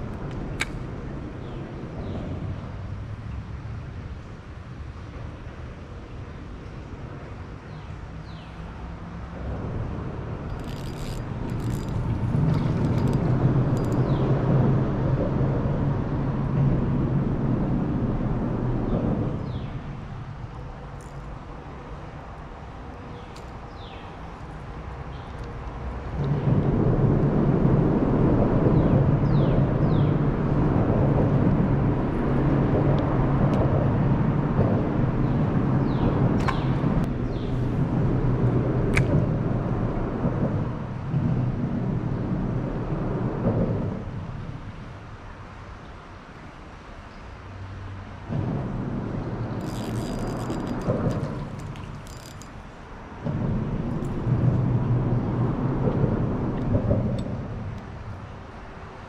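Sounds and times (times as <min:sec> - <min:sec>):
traffic rumbling overhead: 0:00.0 - 0:59.0.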